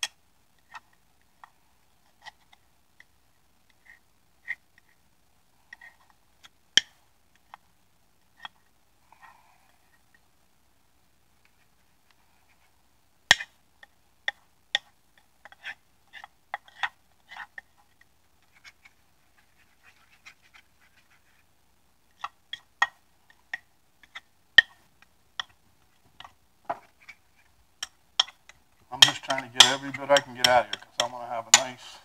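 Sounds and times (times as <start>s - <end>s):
metal utensil scraping ceramic plate: 29.0s - 31.9s.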